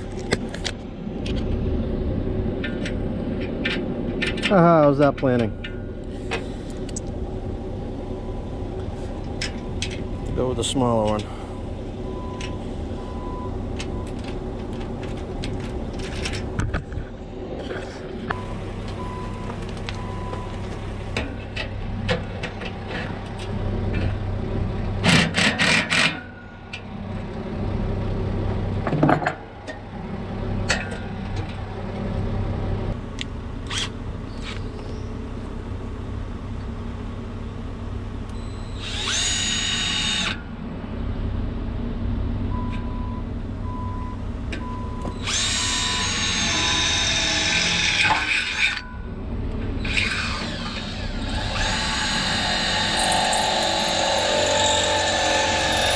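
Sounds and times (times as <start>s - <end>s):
cordless drill drilling into metal: 38.8s - 40.4s, 45.2s - 48.8s, 49.8s - 55.9s.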